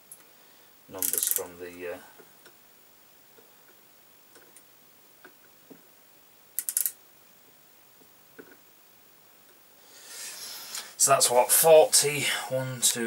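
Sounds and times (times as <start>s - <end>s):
micrometer ratchet clicking: 1.0s - 1.5s, 6.6s - 7.0s.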